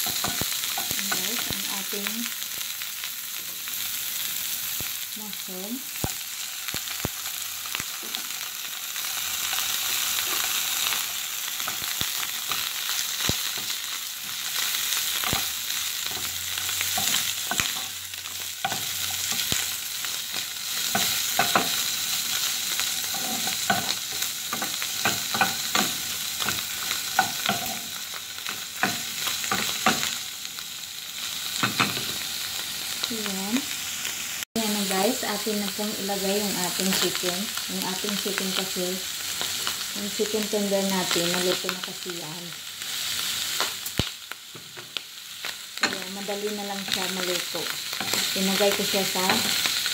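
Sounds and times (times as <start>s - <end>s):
vegetables sizzling in hot oil: 0.0s - 49.9s
spatula scraping and tapping pan: 20.9s - 21.8s, 23.0s - 27.9s.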